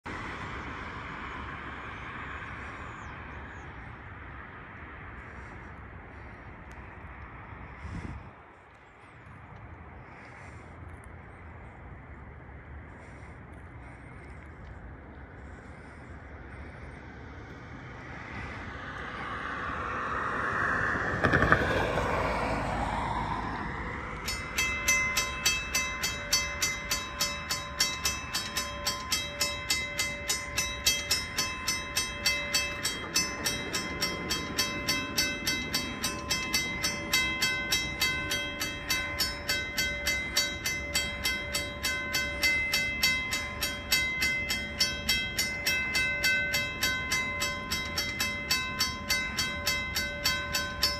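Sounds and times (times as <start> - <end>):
vehicle passing: 0.1 - 50.9
railway crossing warning bell: 11.7 - 50.9.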